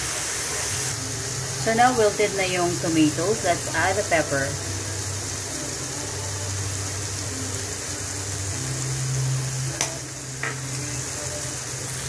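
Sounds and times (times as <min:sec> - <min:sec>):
vegetables sizzling in a frying pan: 0:00.0 - 0:12.0.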